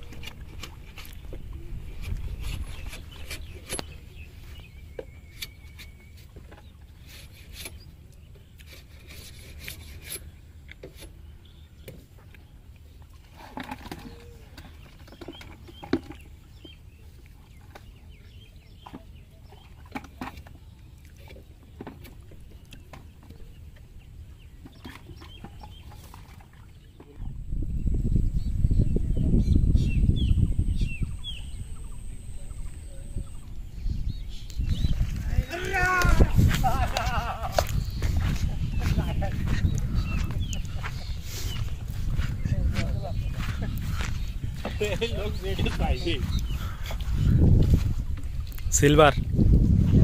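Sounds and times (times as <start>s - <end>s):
wind on microphone: 0.0s - 7.8s, 27.0s - 50.0s
faint bird calls: 1.0s - 27.3s, 28.3s - 47.6s.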